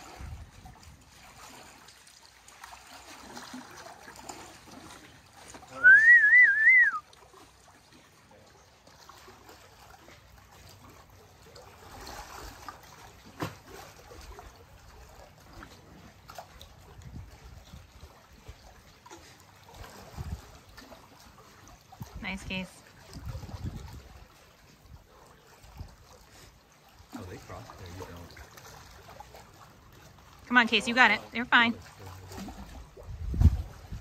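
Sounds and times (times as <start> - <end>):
faint water lapping: 0.0 - 34.0
wavering whistle: 5.8 - 7.1.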